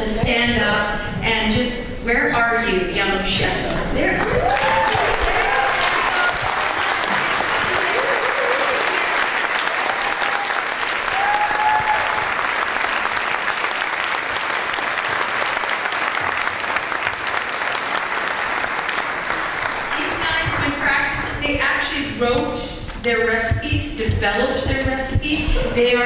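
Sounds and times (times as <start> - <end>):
audience applauding: 4.2 - 21.0.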